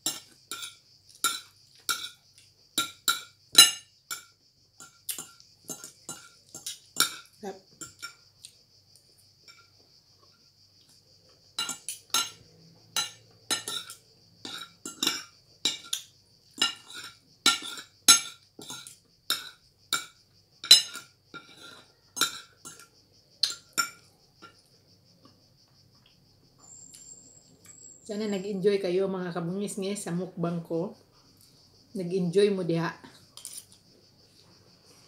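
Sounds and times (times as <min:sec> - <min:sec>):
cutlery clinking on ceramic plate: 0:00.0 - 0:02.2, 0:02.8 - 0:08.2, 0:11.6 - 0:12.4, 0:13.0 - 0:24.6.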